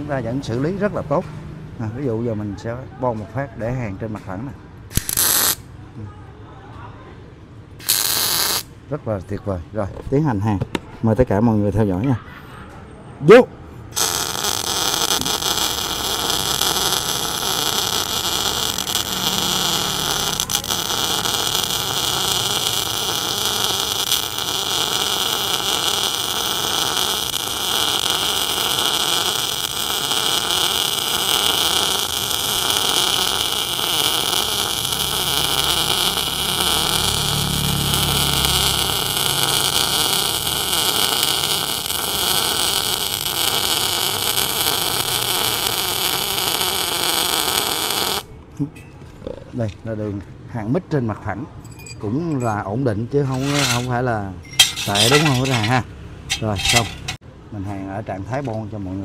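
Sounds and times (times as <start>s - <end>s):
welding arc sizzling: 4.9s - 5.7s, 7.8s - 8.8s, 13.9s - 48.3s, 53.3s - 57.2s.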